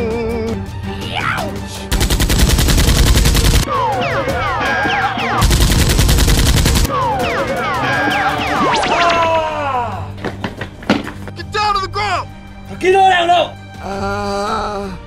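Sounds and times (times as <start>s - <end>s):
background music: 0.0s - 15.0s
machine-gun fire sound effect: 1.9s - 3.7s, 5.4s - 7.0s
sweeping sound effects: 3.7s - 9.4s.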